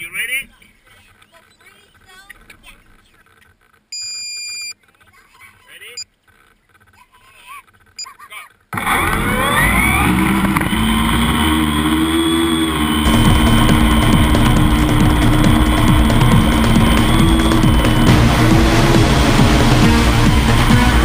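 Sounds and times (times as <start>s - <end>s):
electronic beep: 3.9s - 4.8s, 9.2s - 18.4s
drone motors whirring: 8.8s - 21.0s.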